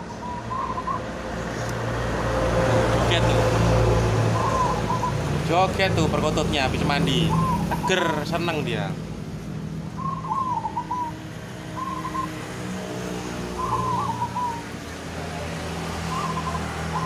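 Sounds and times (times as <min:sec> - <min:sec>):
dove cooing: 0:00.0 - 0:01.2, 0:04.2 - 0:05.3, 0:07.2 - 0:08.4, 0:10.0 - 0:12.4, 0:13.2 - 0:14.8, 0:16.1 - 0:17.0.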